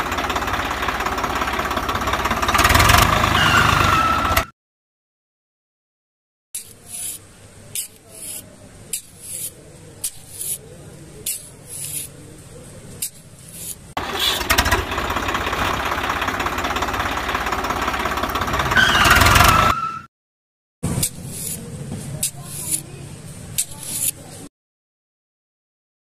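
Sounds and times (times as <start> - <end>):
small motor rattling: 0.0 - 3.6, 14.0 - 19.7.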